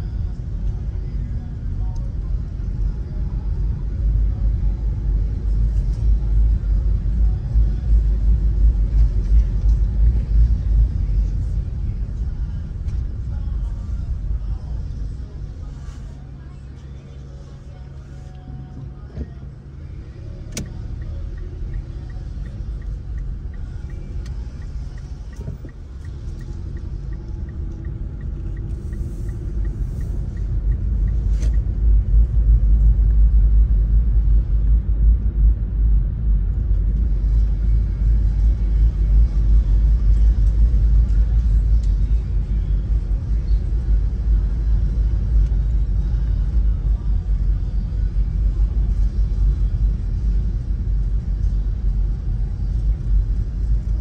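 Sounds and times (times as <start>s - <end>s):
car road and engine rumble: 0.0s - 54.0s
faint regular ticking: 20.5s - 31.6s.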